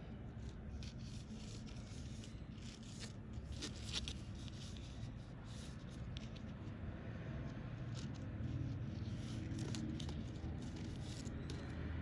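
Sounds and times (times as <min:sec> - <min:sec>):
low steady hum: 0:00.0 - 0:12.0
fishing line rubbing and rustling: 0:07.8 - 0:11.8.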